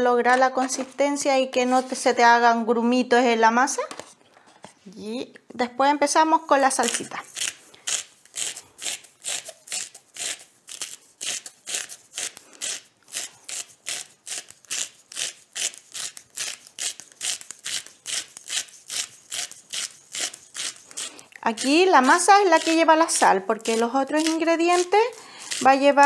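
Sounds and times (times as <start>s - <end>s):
salt grinder crunching: 6.9s - 26.0s.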